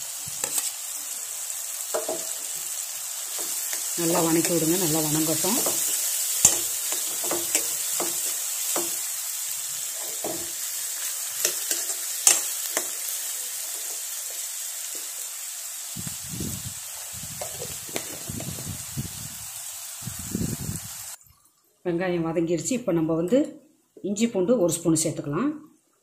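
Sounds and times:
onions sizzling in oil: 0:00.0 - 0:21.2
metal spoon scraping pan: 0:00.4 - 0:00.8, 0:03.3 - 0:09.2, 0:09.8 - 0:14.5.

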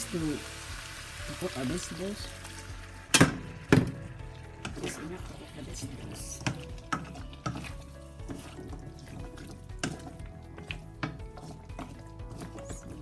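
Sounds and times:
soft background music: 0:00.0 - 0:13.0
spatula scraping metal pan: 0:04.5 - 0:13.0.

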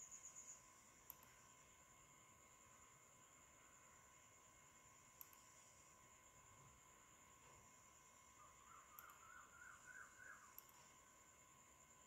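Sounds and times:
faint high whine: 0:00.0 - 0:12.0
computer mouse click: 0:01.0 - 0:01.4, 0:05.2 - 0:05.5, 0:08.9 - 0:09.2, 0:10.5 - 0:10.9.

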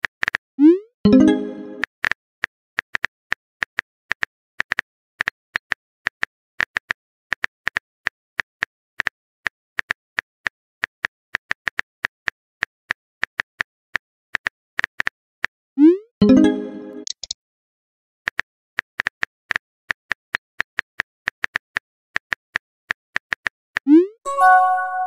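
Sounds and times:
phone keyboard tapping clicks: 0:17.0 - 0:17.4.

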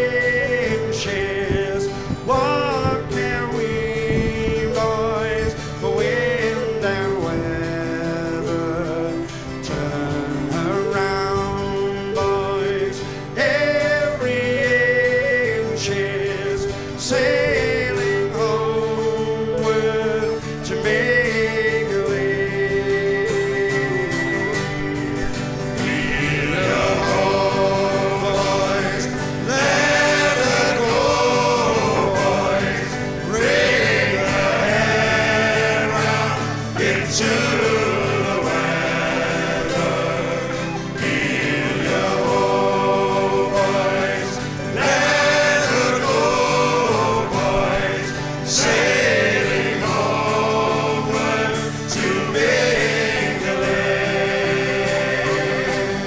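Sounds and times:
several voices singing: 0:00.0 - 0:56.0
steady musical accompaniment: 0:00.0 - 0:56.0.

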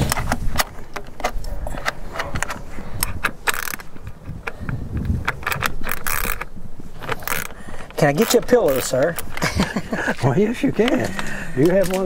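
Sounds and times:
metal clinks and rattles: 0:05.2 - 0:12.0.

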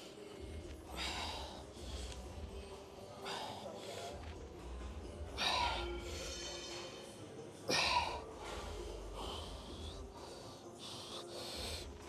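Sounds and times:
man breathing forcefully: 0:00.0 - 0:04.4, 0:07.7 - 0:12.0
background music with bass: 0:00.0 - 0:12.0.

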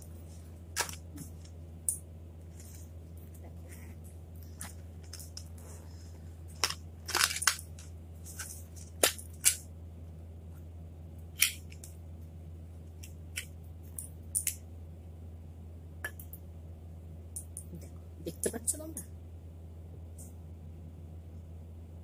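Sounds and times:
low hum: 0:00.0 - 0:22.0
packaging crinkling: 0:06.5 - 0:09.6.

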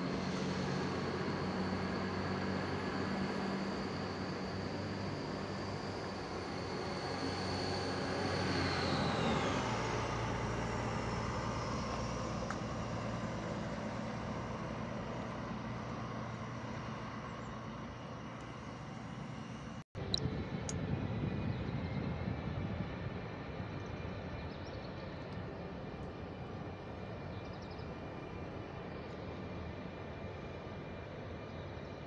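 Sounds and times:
diesel railcar engine rumble: 0:11.7 - 0:31.8.

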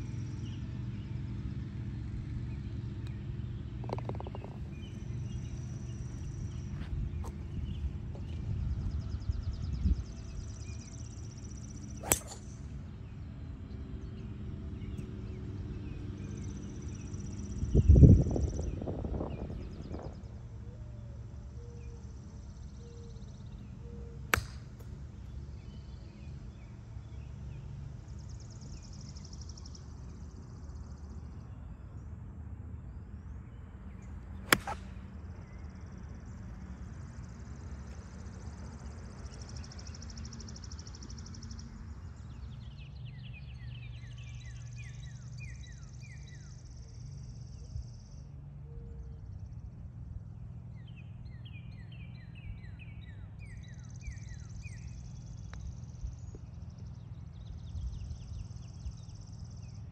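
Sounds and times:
golf club striking ball: 0:12.0 - 0:12.7, 0:24.3 - 0:25.0, 0:34.4 - 0:35.1.

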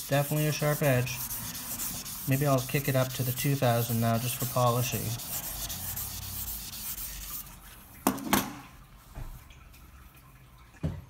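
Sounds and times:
sandpaper rubbing on steel: 0:00.0 - 0:07.6.

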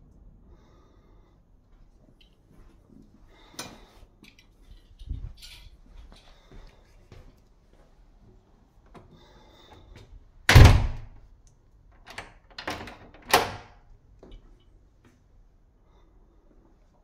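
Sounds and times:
door shutting with a thud: 0:10.5 - 0:11.2
door handle and latch clicks: 0:12.0 - 0:13.7.

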